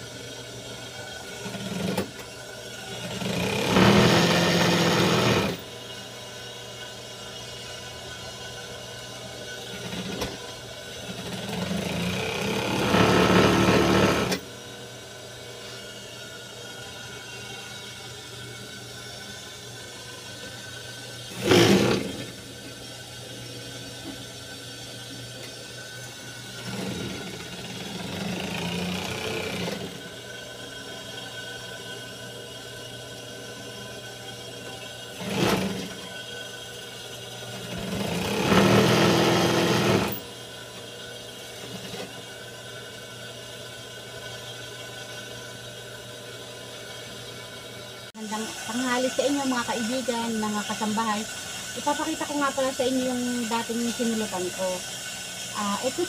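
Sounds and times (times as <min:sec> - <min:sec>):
sewing machine stitching: 0:03.1 - 0:05.6, 0:11.2 - 0:14.4, 0:21.3 - 0:22.3, 0:26.6 - 0:30.0, 0:35.2 - 0:36.0, 0:37.7 - 0:40.2.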